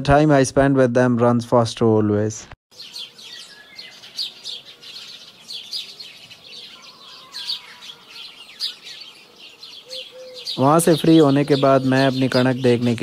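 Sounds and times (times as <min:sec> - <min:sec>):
small birds chirping: 0:02.7 - 0:13.0.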